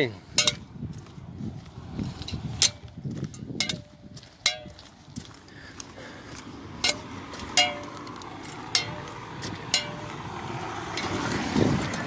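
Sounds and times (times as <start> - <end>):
staff tip clinking on ground: 0.4 - 0.7, 2.2 - 4.9, 6.8 - 10.2.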